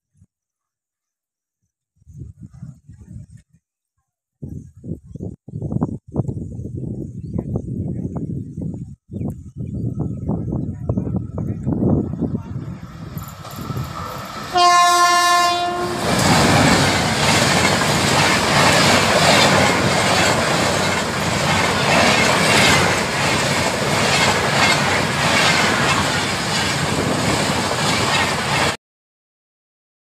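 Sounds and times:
train passing rush: 11.0s - 28.8s
wheels clattering on rails: 13.0s - 14.6s, 15.7s - 28.8s
train horn blast: 14.4s - 16.8s.

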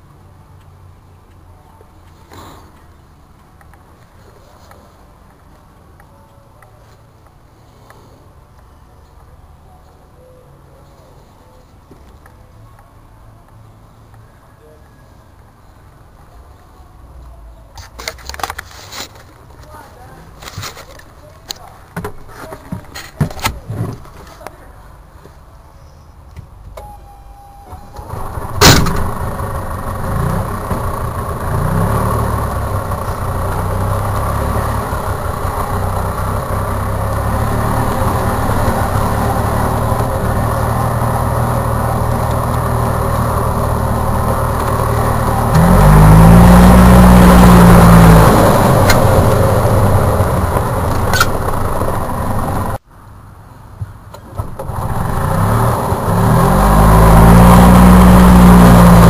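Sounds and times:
engine starting click: 27.9s - 29.1s
golf cart engine running: 27.9s - 52.8s, 54.4s - 59.0s.

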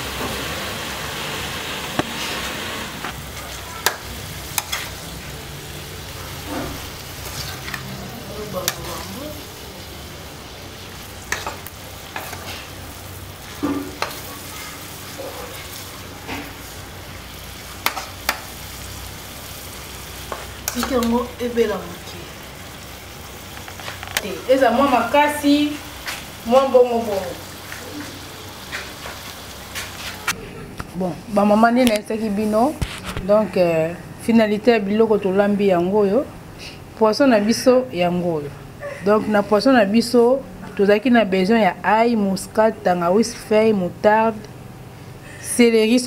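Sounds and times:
food sizzling: 0.0s - 30.4s.

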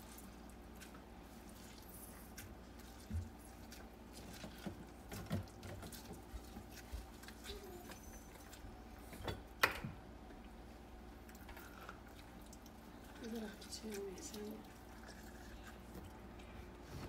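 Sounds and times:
lemon squeezing squishes: 0.0s - 9.0s, 10.3s - 16.8s
small kitchen clicks: 9.0s - 10.0s.

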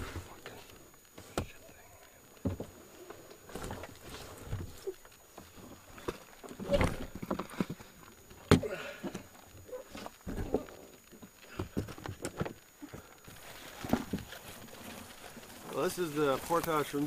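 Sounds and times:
footsteps on muddy trail: 13.3s - 17.0s.

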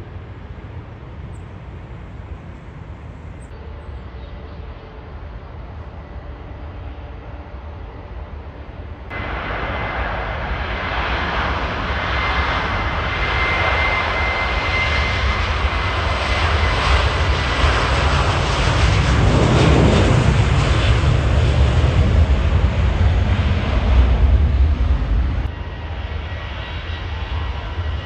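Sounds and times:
deep rumble: 0.0s - 3.6s, 8.8s - 25.6s
jet engines roaring: 0.0s - 28.0s.

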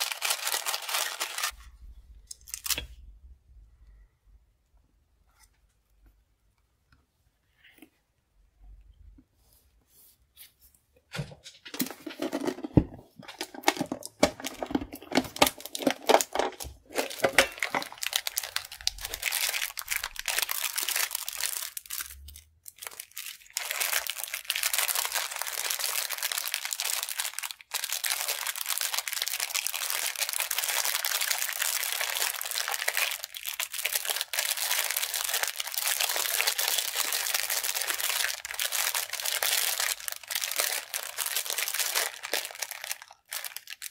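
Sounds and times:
plastic bags crinkling: 0.0s - 1.6s, 11.6s - 43.9s.

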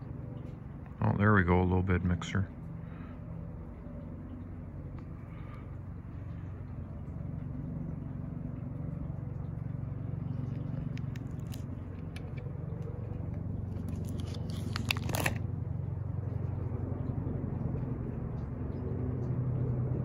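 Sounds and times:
steady low hum: 0.0s - 20.0s
page turning rustle: 13.7s - 15.4s
plastic sleeves crackling: 13.7s - 15.4s.

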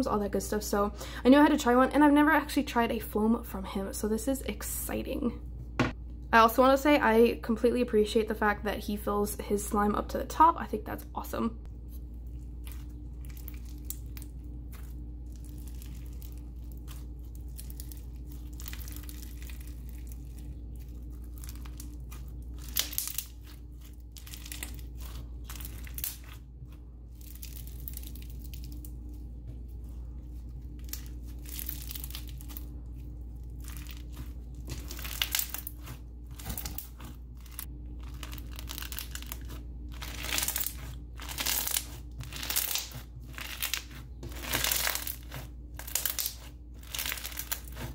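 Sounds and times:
slime crackling crunch: 12.2s - 29.2s, 30.6s - 47.9s
slime tearing: 33.5s - 47.9s.

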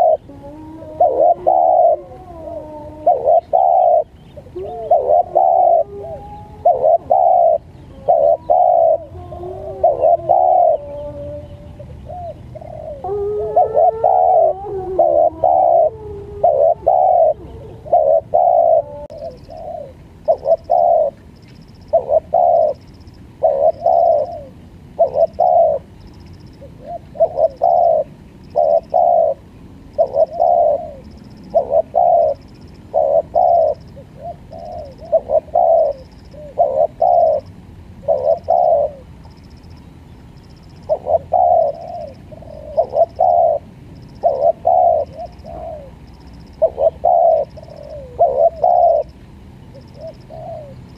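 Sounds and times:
dove cooing: 0.0s - 21.2s, 21.8s - 39.5s, 40.6s - 50.9s.

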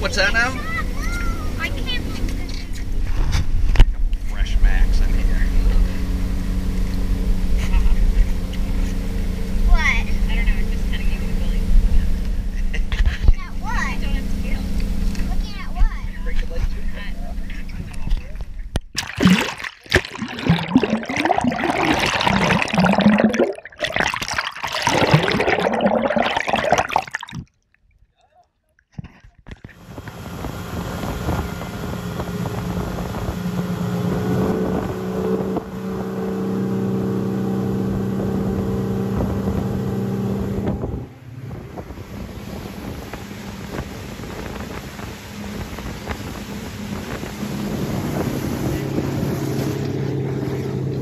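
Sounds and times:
outboard motor running: 0.0s - 27.4s, 29.5s - 51.0s
water splashing and churning: 18.9s - 27.8s.

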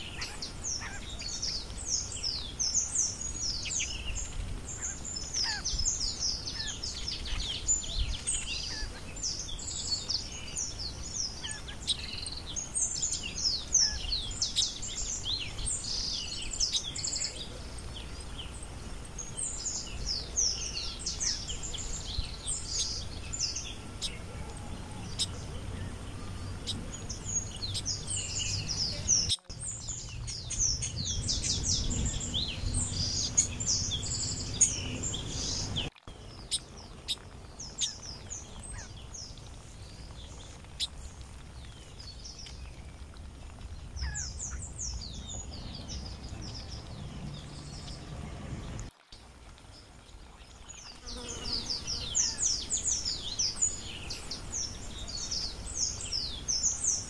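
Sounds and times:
songbirds chirping: 0.0s - 57.0s
low background rumble: 17.3s - 48.9s.

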